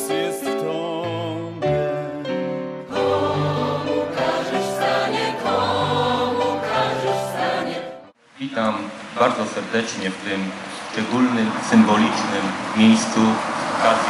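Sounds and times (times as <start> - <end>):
choir singing sustained notes: 0.0 - 8.2.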